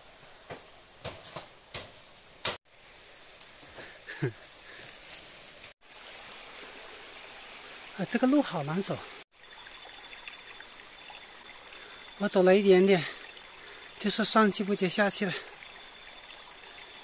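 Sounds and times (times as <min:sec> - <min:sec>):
footsteps through forest undergrowth: 0:04.6 - 0:05.8.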